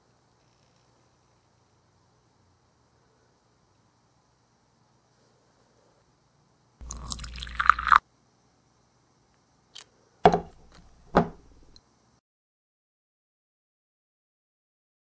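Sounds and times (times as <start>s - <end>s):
tea poured into tiny cup: 6.8s - 8.0s.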